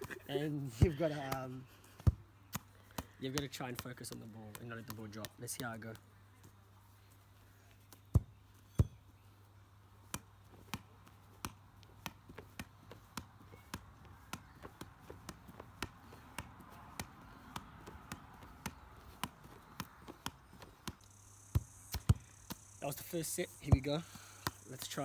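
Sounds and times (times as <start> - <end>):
football tapping off knees: 0.8 - 6.0, 10.1 - 21.0, 21.6 - 22.6
heavier ball thumps: 8.1 - 9.0, 11.4 - 22.6, 23.6 - 25.0.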